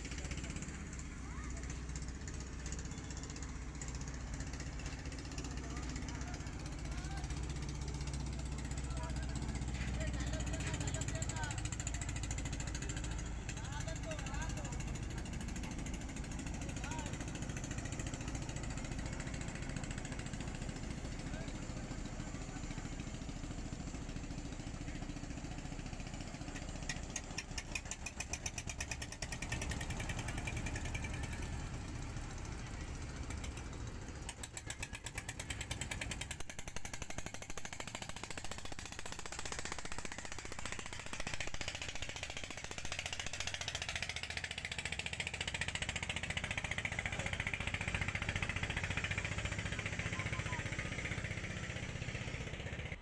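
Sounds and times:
boat engine running: 0.0 - 53.0
rapid even knocking pulses: 33.3 - 51.0.

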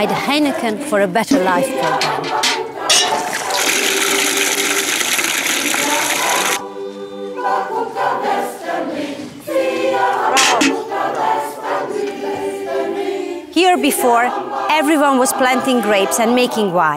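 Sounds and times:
choir singing chords: 0.0 - 16.8
liquid gushing and splashing: 3.1 - 6.6.

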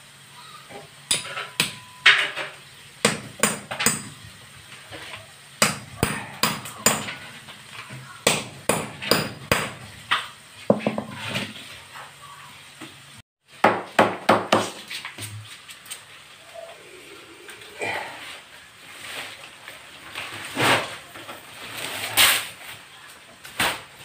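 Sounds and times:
hammer striking chisel: 1.1 - 2.2, 3.0 - 4.1, 5.6 - 7.2, 8.2 - 9.8.

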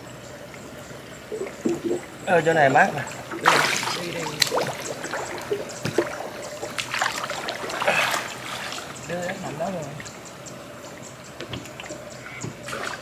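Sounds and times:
water splashing around boat: 0.0 - 13.0
scattered knocks: 4.4 - 6.9.

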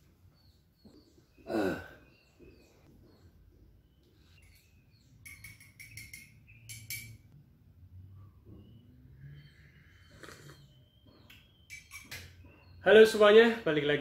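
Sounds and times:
metal spoon clinking against glass mug: 5.2 - 7.3, 11.7 - 12.3
faint bird chirps: 8.1 - 12.9.

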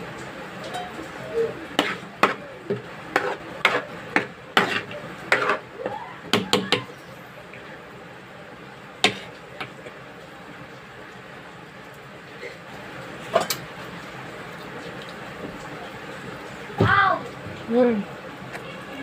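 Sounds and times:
kitchen utensils clacking: 0.6 - 5.6.

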